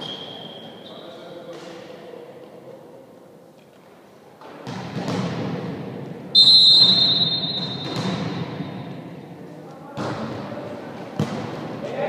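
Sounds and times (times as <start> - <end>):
referee's whistle blast: 0.0 - 1.0, 6.4 - 8.0
echoing voices: 5.6 - 12.0.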